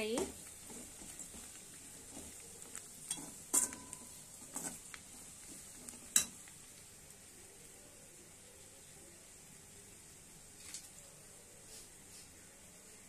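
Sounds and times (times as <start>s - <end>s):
spatula clinking and scraping pan: 0.0s - 6.5s
food sizzling: 0.0s - 13.0s.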